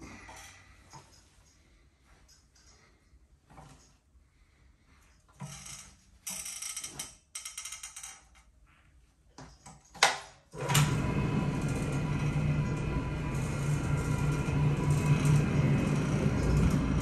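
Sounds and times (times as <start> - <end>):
floor machine motor humming: 10.6 - 17.0.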